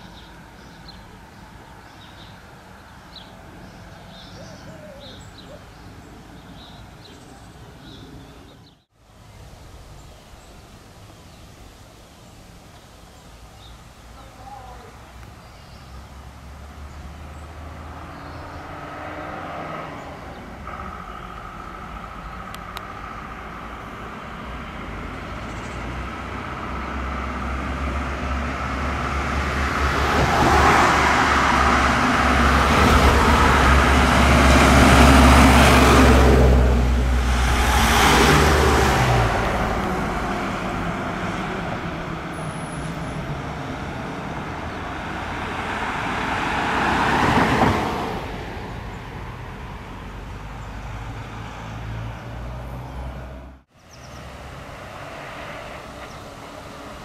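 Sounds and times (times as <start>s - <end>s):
vehicles driving past: 0.0s - 57.0s.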